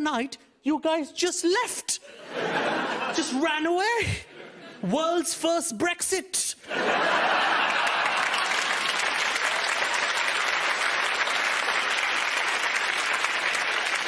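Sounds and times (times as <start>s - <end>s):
audience laughing: 2.0s - 3.6s, 6.6s - 9.2s
audience applauding: 7.1s - 14.0s.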